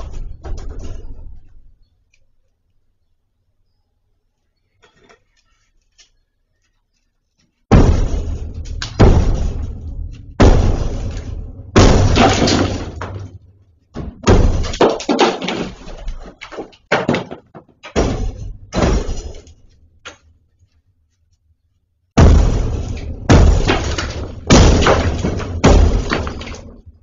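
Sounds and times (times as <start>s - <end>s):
heavy blows on masonry wall: 7.7s - 15.8s, 22.2s - 27.0s.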